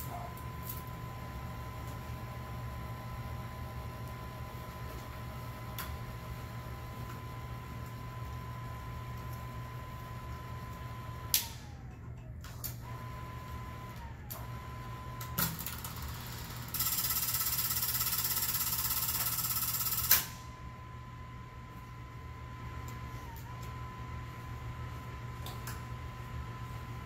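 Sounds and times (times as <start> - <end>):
film projector motor whining: 12.7 - 21.4.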